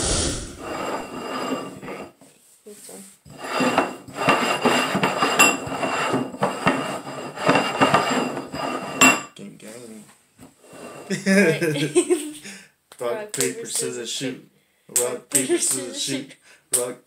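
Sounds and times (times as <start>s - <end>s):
ceramic bowls scraping on wood: 0.0s - 2.2s, 3.2s - 9.2s, 10.6s - 11.1s.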